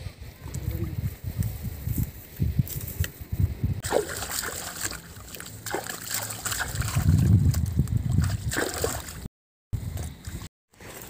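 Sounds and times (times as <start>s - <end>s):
hands splashing in muddy water: 3.8s - 9.3s.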